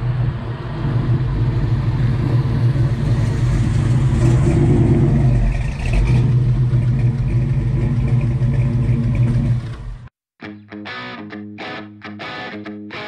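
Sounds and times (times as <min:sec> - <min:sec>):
car engine passing: 0:00.0 - 0:10.1.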